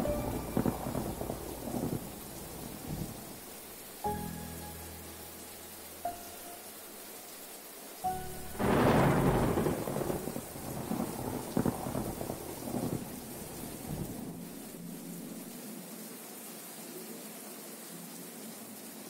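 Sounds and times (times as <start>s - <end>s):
short musical notes: 0.0s - 3.3s
thunder rumbling: 0.0s - 4.0s, 8.2s - 14.8s
steady rain: 0.0s - 19.0s.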